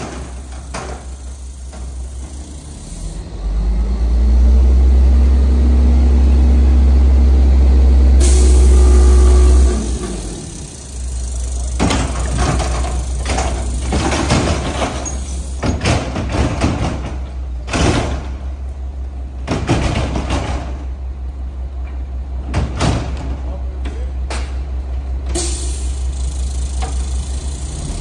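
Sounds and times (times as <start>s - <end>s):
metal bangs and clanks: 0.0s - 2.7s, 9.6s - 18.6s, 19.4s - 21.0s, 22.4s - 23.6s
diesel engine running: 0.0s - 28.0s.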